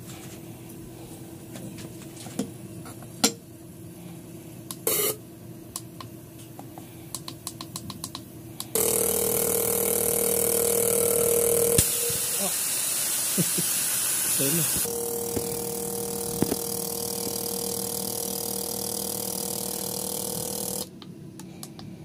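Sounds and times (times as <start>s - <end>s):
fuel injector buzzing and hissing: 8.7s - 20.9s.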